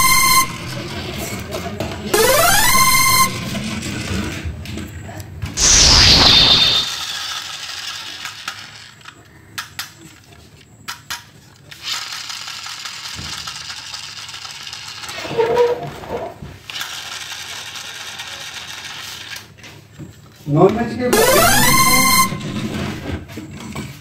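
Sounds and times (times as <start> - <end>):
loud burst with falling pitch: 2.2 - 4.1, 5.6 - 7.2, 21.2 - 23.0
plastic toy clicks and rattles: 7.0 - 15.3, 16.6 - 19.6.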